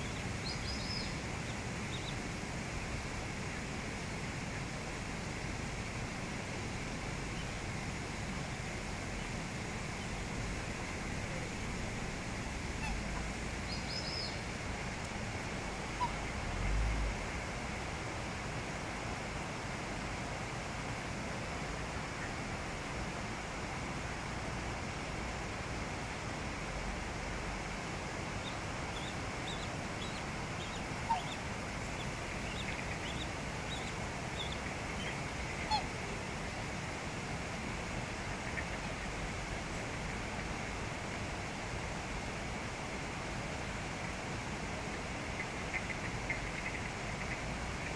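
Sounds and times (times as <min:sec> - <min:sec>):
cygnets peeping: 0:00.0 - 0:02.2, 0:28.4 - 0:35.8
brook water rushing: 0:00.0 - 0:47.9
steady background hiss: 0:00.0 - 0:47.9
waterfowl calling: 0:12.7 - 0:14.5, 0:15.8 - 0:16.3, 0:28.4 - 0:36.0.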